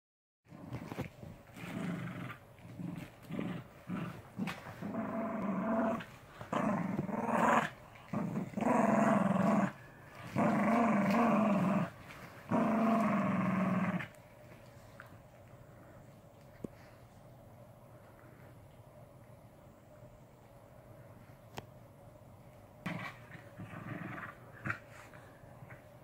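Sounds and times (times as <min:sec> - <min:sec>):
dogs growling: 0:00.5 - 0:14.2, 0:22.8 - 0:25.9.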